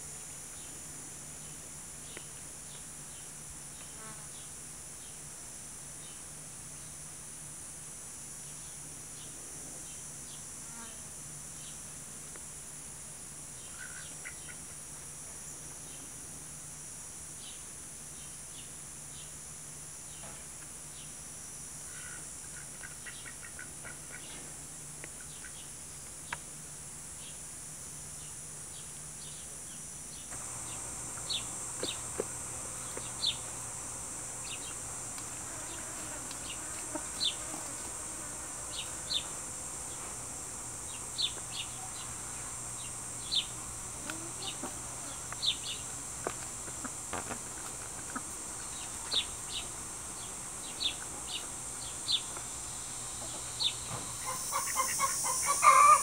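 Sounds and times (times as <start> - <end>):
high-pitched insect drone: 26.6 - 56.0.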